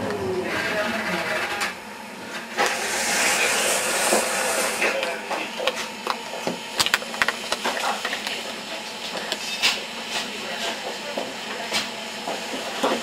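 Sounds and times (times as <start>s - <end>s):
steady hiss inside tram: 0.0s - 5.2s.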